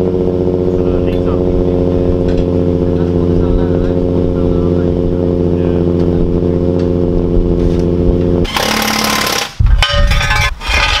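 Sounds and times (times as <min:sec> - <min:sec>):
engine idling: 0:00.0 - 0:09.5
impact wrench rattling: 0:08.5 - 0:11.0.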